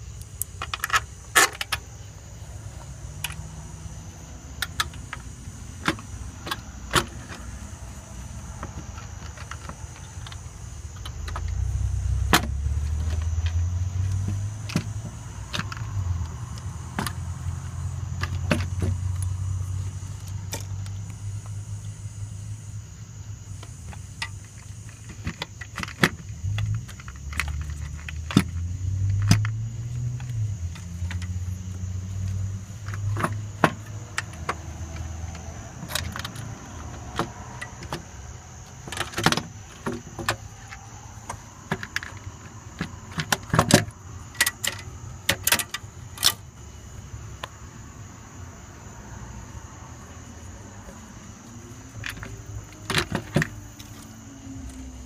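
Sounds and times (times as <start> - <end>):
metallic clicks of tools and fasteners: 38.9 - 46.4.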